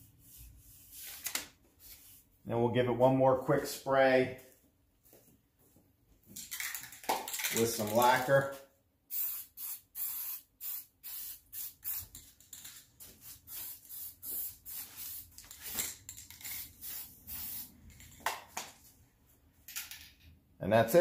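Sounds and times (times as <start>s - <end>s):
aerosol can spraying bursts: 9.1s - 12.2s, 13.2s - 15.3s, 16.5s - 17.8s.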